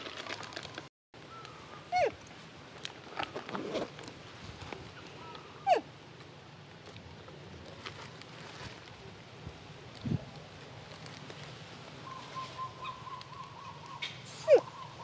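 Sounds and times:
crackles and rustles: 0:00.0 - 0:14.5.

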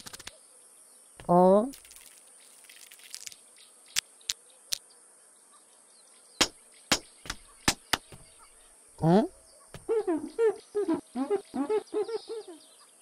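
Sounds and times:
sharp cartoon clicks: 0:00.0 - 0:00.3, 0:06.4 - 0:08.2
high-pitched forest hiss: 0:01.2 - 0:04.9.

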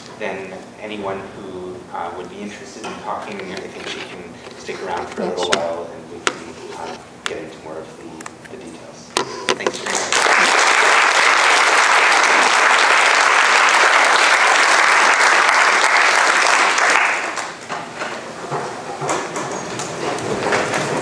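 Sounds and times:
audience applauding: 0:09.8 - 0:17.6.

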